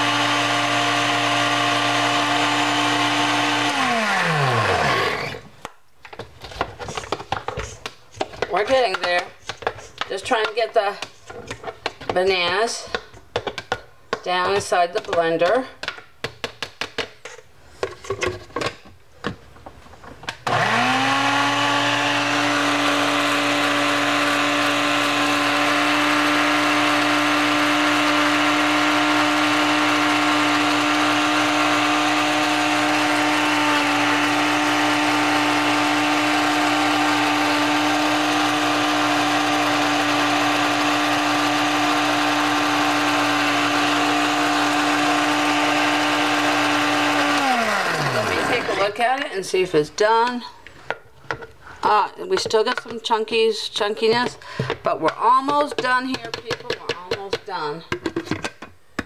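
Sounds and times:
blender motor running: 0:00.0 - 0:05.5, 0:20.4 - 0:49.0.

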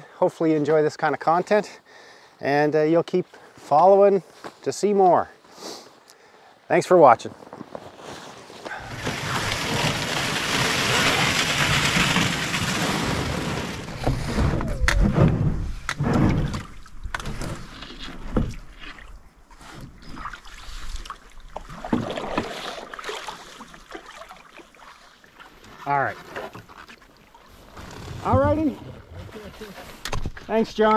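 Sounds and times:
paddle knocks and splashes: 0:08.8 - 0:27.0.

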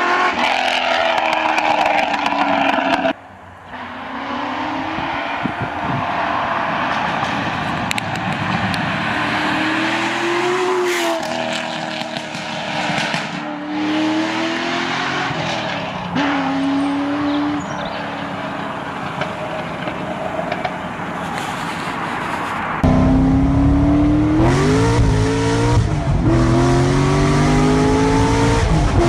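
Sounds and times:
engine revving through gear changes: 0:22.8 - 0:29.0.

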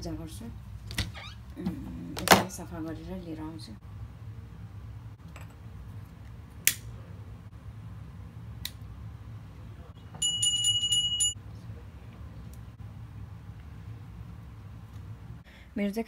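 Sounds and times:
hand bell ringing: 0:10.2 - 0:11.4.

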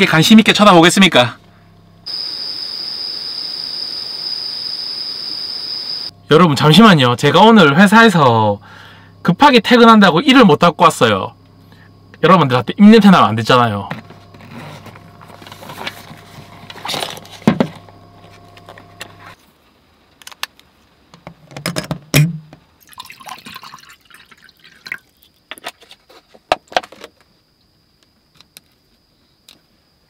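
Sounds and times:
small pump motor humming: 0:01.5 - 0:06.7, 0:13.8 - 0:19.4
water trickling and splashing: 0:22.8 - 0:25.5.

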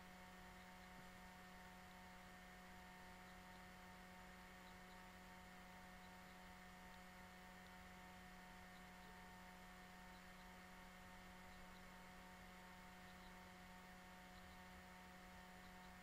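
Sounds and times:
faint electrical hum: 0:00.0 - 0:16.0.

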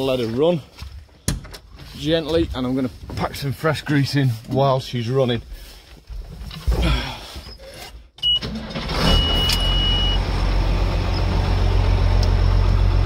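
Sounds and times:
diesel engine starting and idling: 0:08.2 - 0:13.0.

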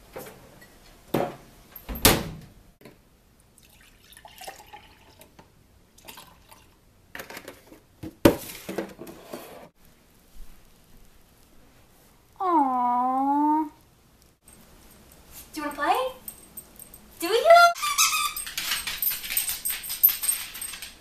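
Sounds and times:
liquid pouring into a glass: 0:03.6 - 0:05.3, 0:06.0 - 0:06.8.

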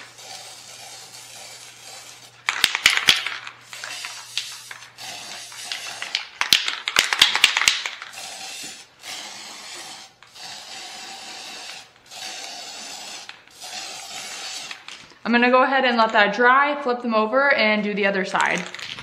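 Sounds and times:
spray can hissing: 0:00.0 - 0:15.0
spray can ball rattling: 0:00.0 - 0:15.2, 0:18.3 - 0:19.0.

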